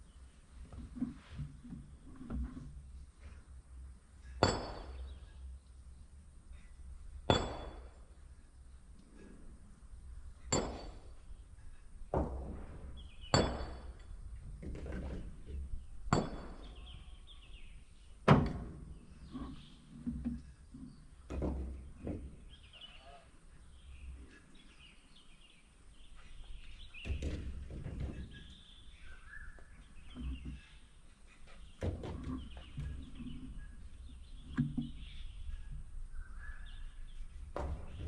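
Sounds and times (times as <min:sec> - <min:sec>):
metallic clanks and thunks: 0:04.4 - 0:05.2, 0:12.1 - 0:17.1, 0:18.2 - 0:22.6, 0:27.0 - 0:28.6, 0:31.6 - 0:33.4, 0:37.5 - 0:38.0.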